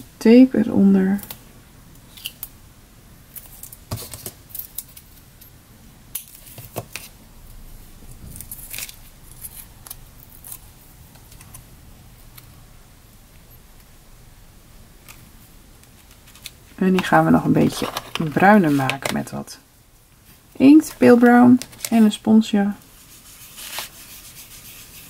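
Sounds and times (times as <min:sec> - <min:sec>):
paper and tape crackling: 0:08.0 - 0:11.7, 0:15.0 - 0:19.2, 0:22.8 - 0:25.0.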